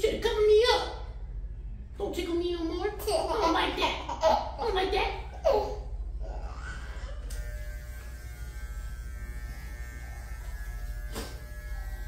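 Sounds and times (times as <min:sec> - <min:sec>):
electric hair clippers buzzing: 0:07.0 - 0:12.0.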